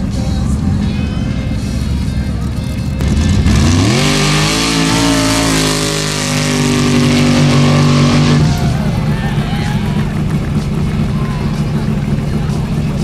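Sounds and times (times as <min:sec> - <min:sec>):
buggy engine at full throttle: 0:00.0 - 0:13.0.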